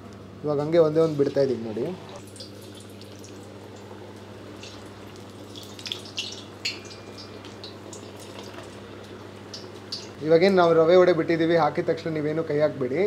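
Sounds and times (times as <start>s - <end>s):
steady low hum: 0.0s - 13.0s
fritter sizzling in hot oil: 2.2s - 3.8s, 4.4s - 10.2s.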